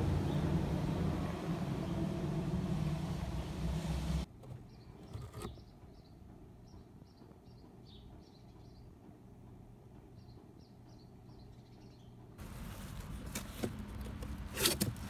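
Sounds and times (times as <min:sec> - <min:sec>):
low outdoor rumble: 0:00.0 - 0:04.8.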